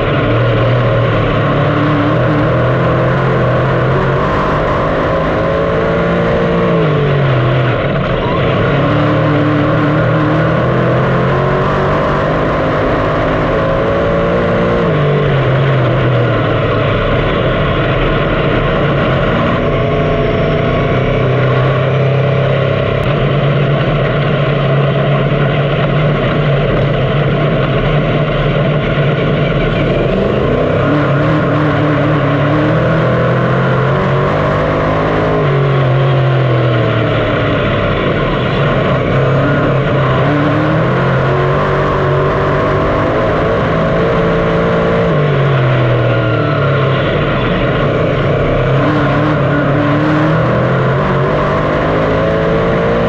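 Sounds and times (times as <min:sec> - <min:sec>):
race car engine revving: 0:00.0 - 0:53.0.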